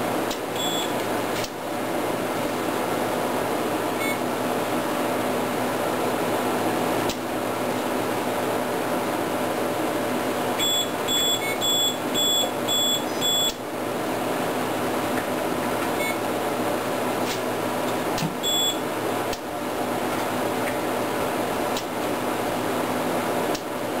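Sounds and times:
fan noise: 0.0 - 24.0
short high alarm beeps: 0.6 - 0.9, 10.6 - 13.6, 18.4 - 18.8.

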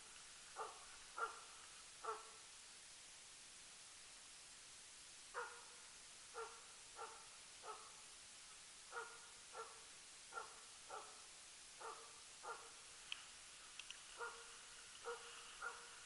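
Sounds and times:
dog barking: 0.6 - 2.4, 5.3 - 8.0, 8.9 - 11.2, 11.8 - 12.8, 14.2 - 16.0.

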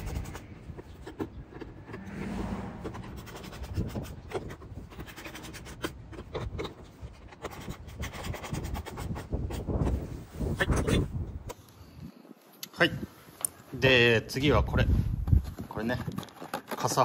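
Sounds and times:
metal scraping against plastic: 0.0 - 8.0, 15.9 - 17.0.

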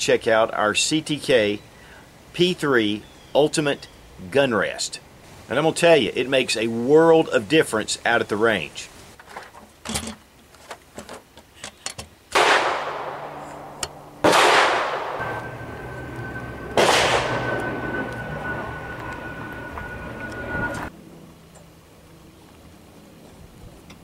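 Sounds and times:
gunshots echoing: 12.3 - 15.6, 16.7 - 17.9.

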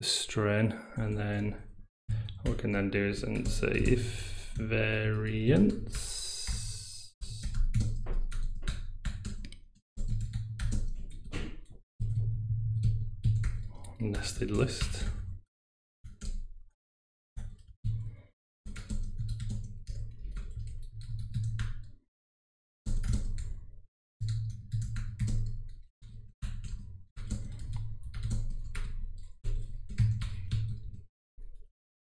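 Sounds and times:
fast typing on keyboard: 2.2 - 15.3, 16.0 - 16.5, 17.4 - 18.1, 18.7 - 21.9, 22.9 - 23.6, 24.2 - 31.6.

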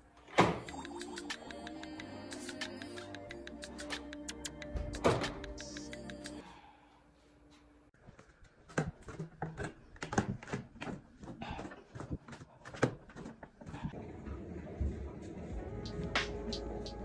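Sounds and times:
music: 0.6 - 6.6, 15.5 - 17.0.

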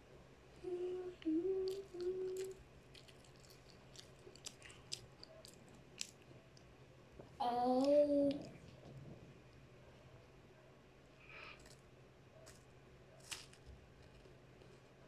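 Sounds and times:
person humming: 0.6 - 2.6
chewing crunchy biscuit: 1.2 - 6.7.

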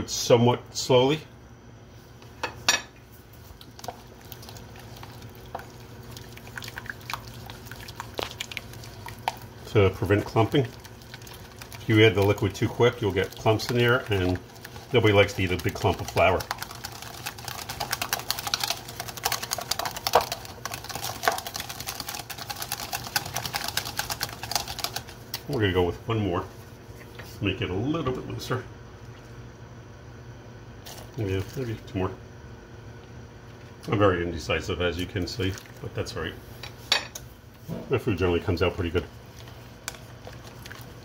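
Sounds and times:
steady low hum: 0.0 - 41.0
whisk stirring wet mixture: 3.0 - 27.5, 30.8 - 32.1, 34.8 - 36.8, 38.0 - 41.0
whisk wires ticking on bowl: 3.5 - 25.6.

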